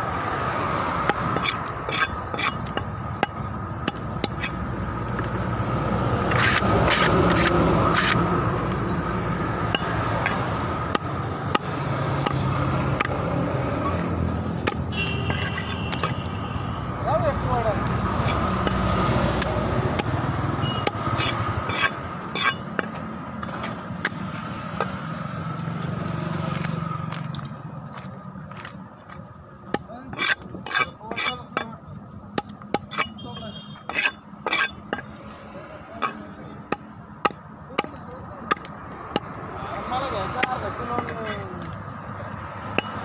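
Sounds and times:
knife scraping fish scales: 1.3 - 2.8, 4.2 - 4.6, 6.3 - 8.2, 15.1 - 16.2, 21.1 - 22.6, 30.1 - 31.6, 32.8 - 33.2, 33.8 - 35.0.

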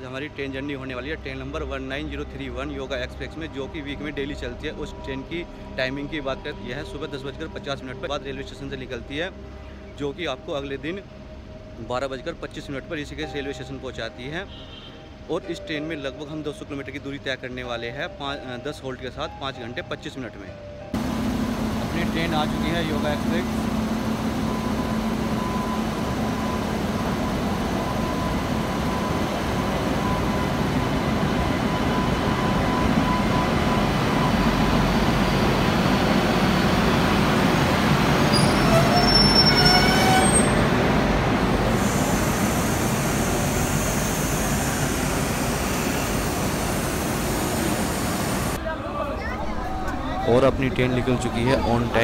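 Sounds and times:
train rolling past: 20.9 - 48.6
thin steady whine: 21.0 - 40.5, 41.2 - 48.6
short rising squeal: 21.2 - 48.6.

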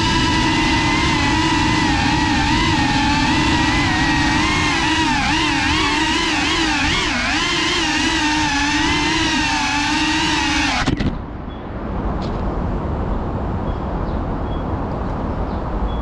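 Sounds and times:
drone motors whining: 0.0 - 11.3
outdoor background noise: 0.0 - 16.0
drone landing clatter: 10.5 - 11.3.

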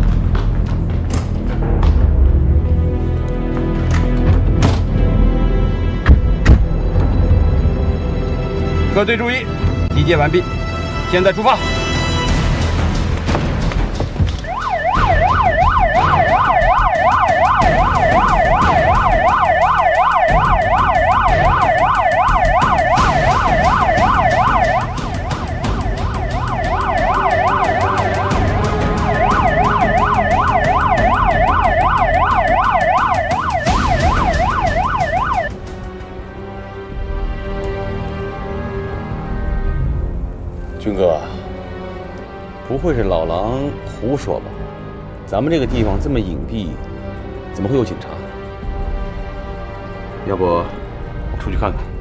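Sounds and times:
police siren yelping: 14.4 - 35.6.

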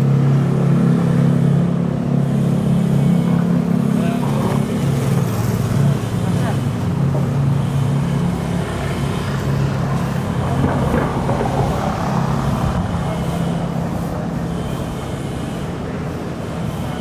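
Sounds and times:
passing vehicles: 0.0 - 17.0
vehicle engines humming: 0.0 - 17.0.

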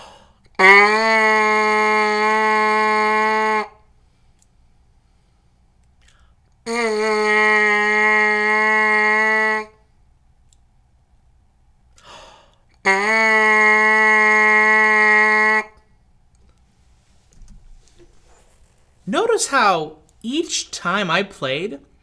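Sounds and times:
quick breath: 0.0 - 0.4, 12.0 - 12.7
trumpet mouthpiece buzzing: 0.6 - 3.9, 6.6 - 9.8, 12.8 - 15.8.

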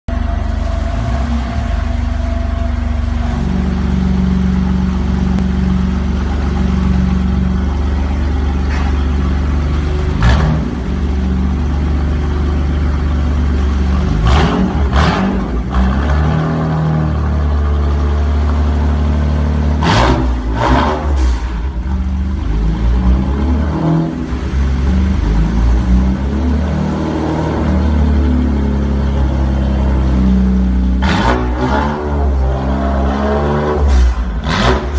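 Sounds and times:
car engine idling and revving: 0.1 - 34.9
exhaust cracks: 30.6 - 34.9.

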